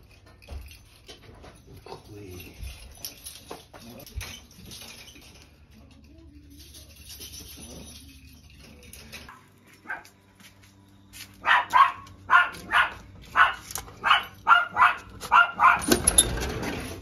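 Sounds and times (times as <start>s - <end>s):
dog barking: 9.3s - 10.1s, 11.4s - 16.0s.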